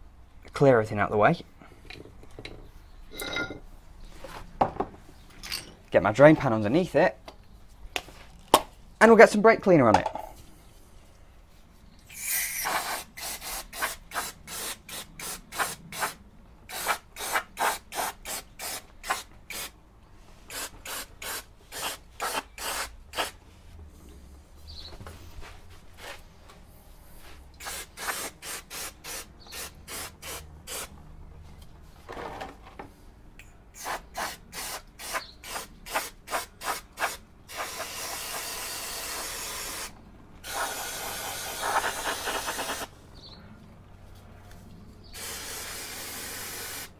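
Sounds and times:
aerosol spray hissing: 27.6 - 30.9, 33.8 - 42.9, 45.2 - 46.9.

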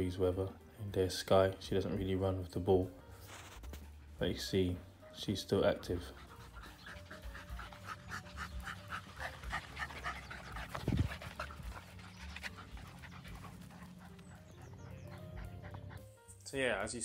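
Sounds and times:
dog panting: 4.8 - 16.1.

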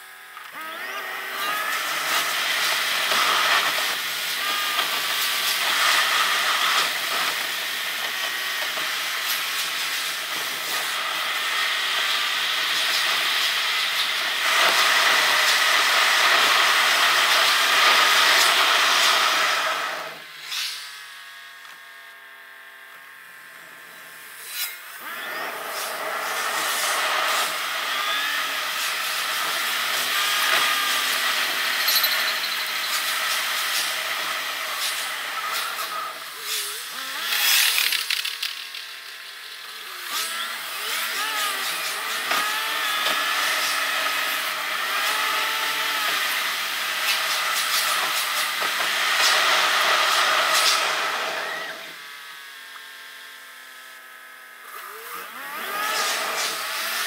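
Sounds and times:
sped-up car driving whir: 23.5 - 52.6.

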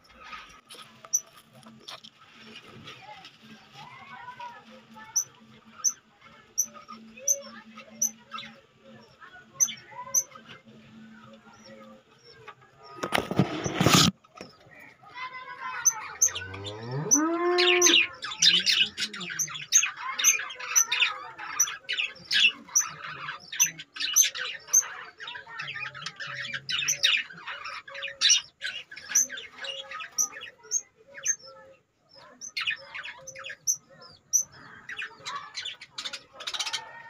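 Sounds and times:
budgerigars chattering: 17.6 - 31.6.

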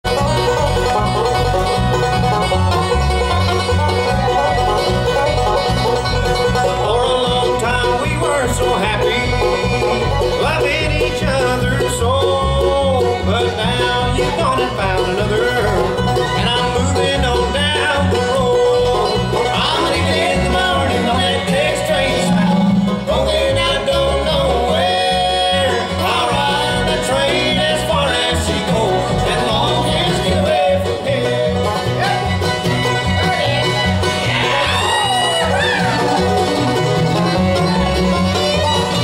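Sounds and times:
bluegrass band playing: 0.0 - 39.0.

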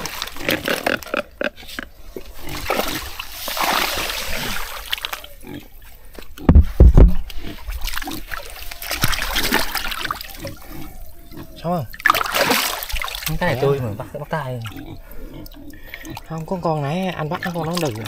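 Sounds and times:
splashing in shallow water: 0.0 - 16.5, 17.3 - 18.0
heavy thumps: 6.4 - 7.3.

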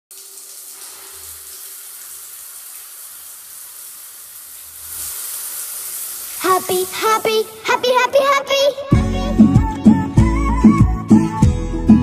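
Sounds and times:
shower water hissing: 0.1 - 8.0.

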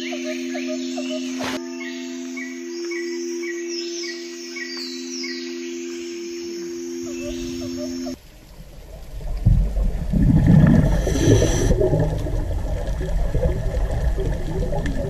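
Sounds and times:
held musical tones: 0.0 - 8.2
low rushing gurgling noise: 7.2 - 15.0.

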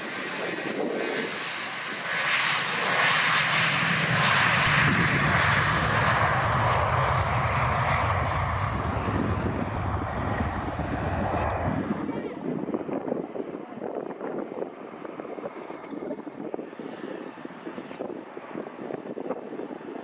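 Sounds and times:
jet engines roaring: 0.0 - 20.0
deep rumble: 3.8 - 16.9.

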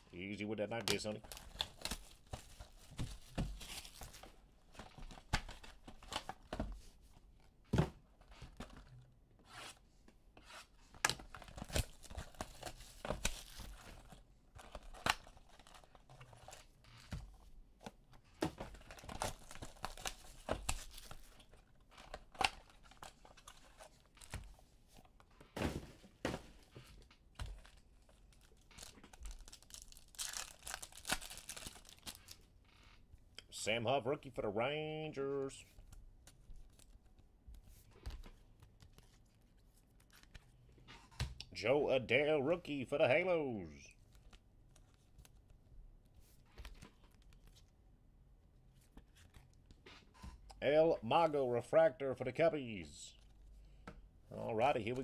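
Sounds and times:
cardboard boxes and cards handled: 0.7 - 32.5, 35.6 - 41.4, 44.0 - 47.8, 48.6 - 50.5
plastic wrap tearing and crinkling: 27.6 - 32.4.

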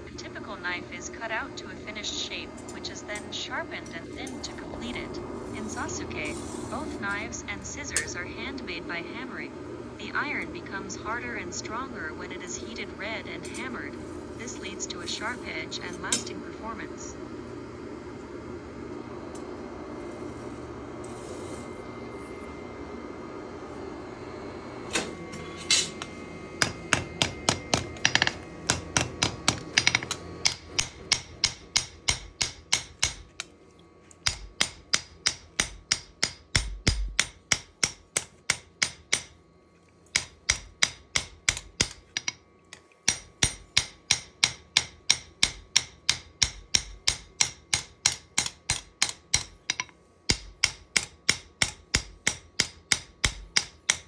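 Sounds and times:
hammer striking metal on anvil: 24.9 - 33.5, 34.2 - 39.4, 40.1 - 42.4, 43.1 - 54.0.

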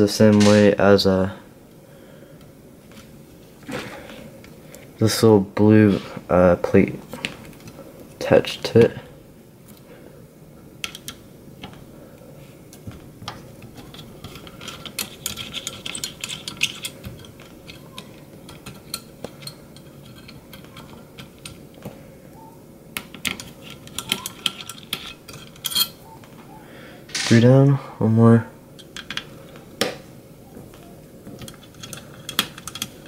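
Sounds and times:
screwdriver clicking on sheet metal: 23.0 - 25.9.

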